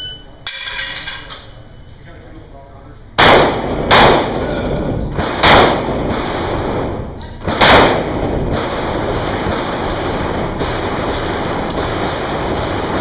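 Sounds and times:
handgun shots echoing: 0:03.2 - 0:13.0.

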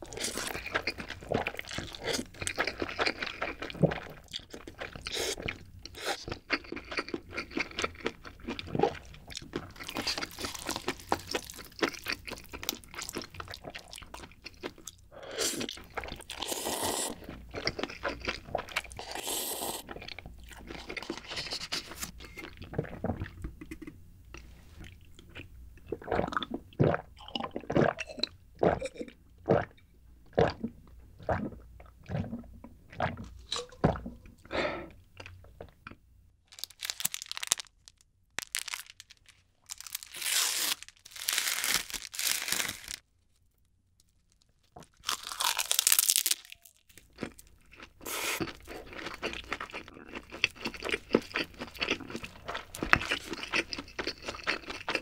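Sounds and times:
noodles slurped and chewed: 0:00.0 - 0:23.3, 0:47.2 - 0:55.0
milk swallowed in gulps: 0:25.9 - 0:35.0.

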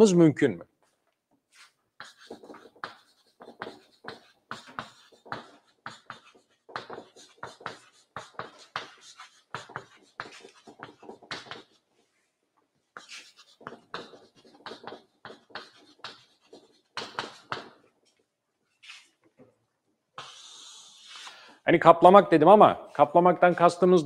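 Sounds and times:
chalk scratching on chalkboard: 0:01.5 - 0:12.1, 0:12.9 - 0:17.9, 0:18.7 - 0:19.2, 0:20.2 - 0:21.5.

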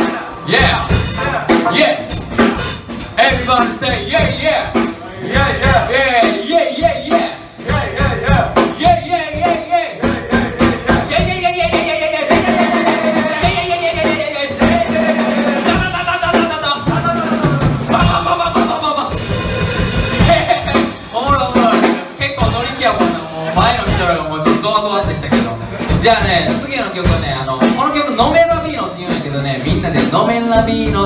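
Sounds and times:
man singing into a microphone: 0:00.0 - 0:02.2, 0:03.2 - 0:18.9, 0:29.1 - 0:31.0
bass guitar: 0:00.0 - 0:31.0
drum kit beat: 0:00.0 - 0:31.0.

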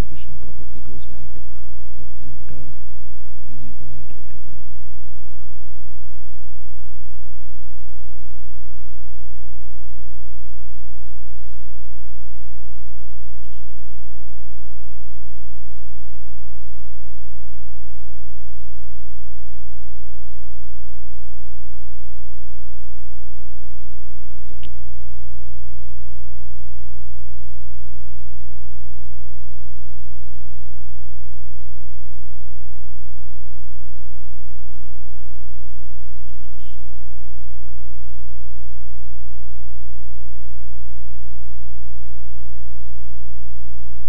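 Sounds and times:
electrical mains hum: 0:00.0 - 0:44.0
sharp click: 0:24.5 - 0:24.8.

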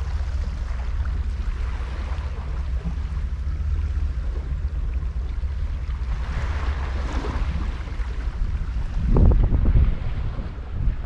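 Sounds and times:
wind buffeting microphone: 0:00.0 - 0:11.0
sea washing against rocks: 0:04.7 - 0:11.0.

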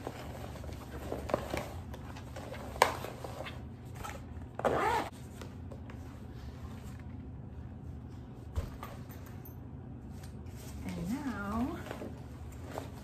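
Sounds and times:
zipper zipping: 0:04.0 - 0:05.2.

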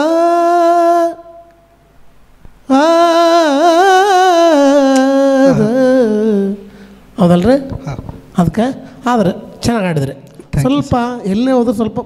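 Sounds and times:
person singing ornamented phrase: 0:02.7 - 0:06.7.

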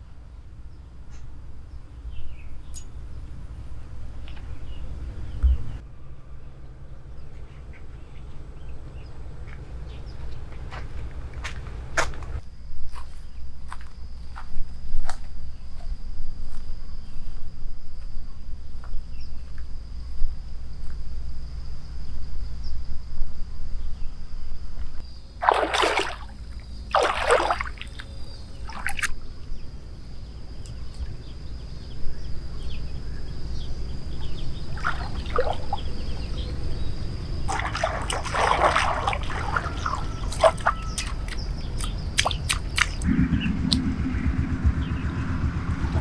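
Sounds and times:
high insect trill: 0:12.4 - 0:43.4
shallow water sloshing: 0:25.4 - 0:29.2, 0:34.7 - 0:36.1, 0:37.4 - 0:43.0
low hum: 0:38.9 - 0:46.0.

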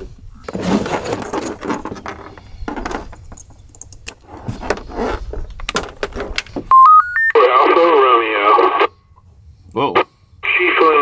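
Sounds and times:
cables and connectors rattling: 0:00.4 - 0:06.7.

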